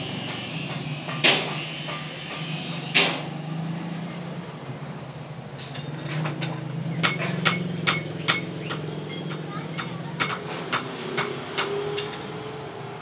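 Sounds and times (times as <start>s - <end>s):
hammer striking steel: 0.0s - 3.3s, 6.8s - 12.3s.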